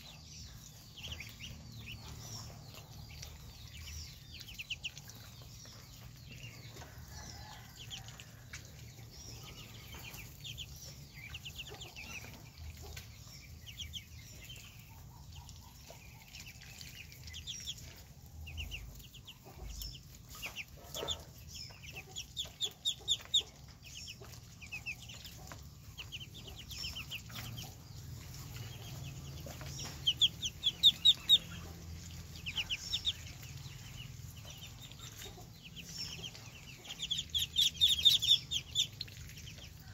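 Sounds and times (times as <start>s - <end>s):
ducklings peeping: 0.0s - 39.9s.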